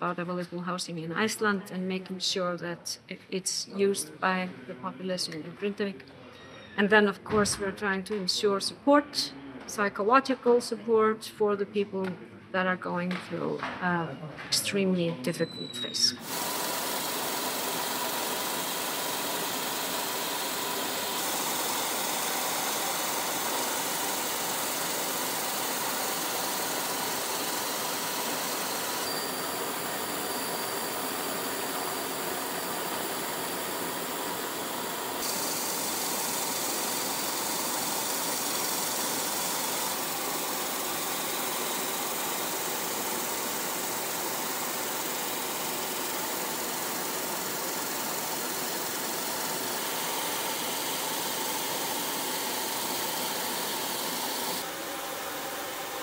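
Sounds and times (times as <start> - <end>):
engine-like hum and hiss: 16.2 - 56.0.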